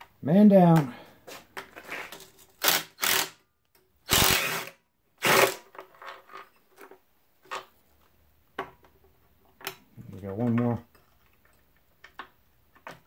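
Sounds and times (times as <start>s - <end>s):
cordless impact driver bursts: 2.6s - 3.4s, 4.1s - 5.6s.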